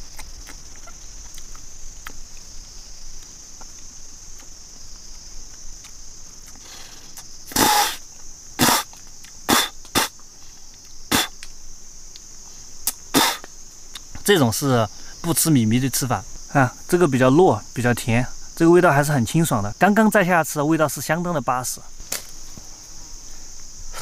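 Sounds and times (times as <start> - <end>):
high buzz of insects: 0.0 - 24.0
person spitting out seeds: 6.5 - 10.2, 11.1 - 11.5, 12.8 - 13.5.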